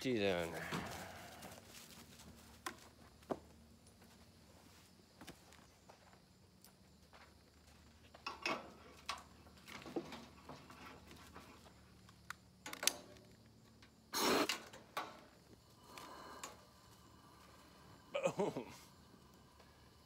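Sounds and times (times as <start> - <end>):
short hiss: 14.1 - 14.7.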